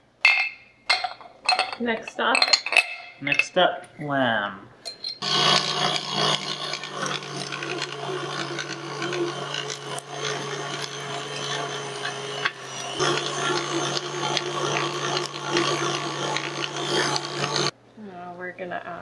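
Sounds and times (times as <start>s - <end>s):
meat grinder grinding: 5.2s - 17.7s
mixer motor humming: 5.2s - 17.7s.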